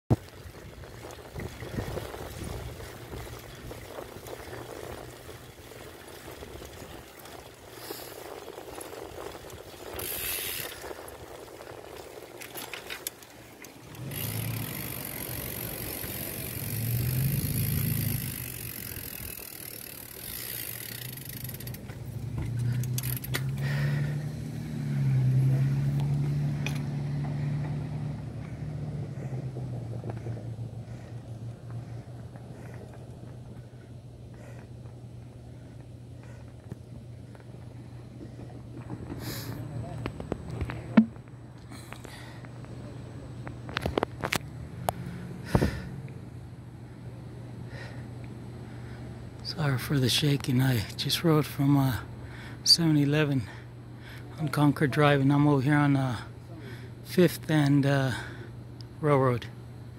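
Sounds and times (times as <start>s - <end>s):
bicycle rattling over pavement: 0.1s - 41.1s, 48.8s - 53.6s
low wavering hum: 0.2s - 59.9s.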